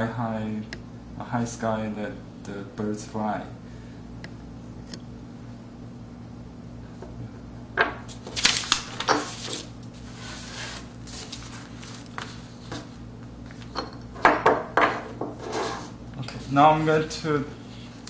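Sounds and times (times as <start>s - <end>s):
steady low hum: 0.0s - 18.0s
items knocking on wooden tabletop: 14.2s - 15.3s.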